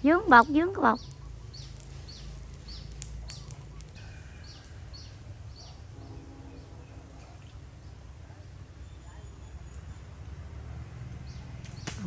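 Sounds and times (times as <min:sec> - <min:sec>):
bird chirping: 0:00.0 - 0:10.5.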